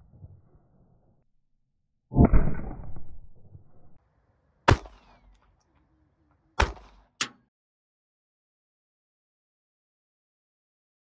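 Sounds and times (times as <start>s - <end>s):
pistol shots: 4.6s - 5.9s, 6.6s - 7.4s.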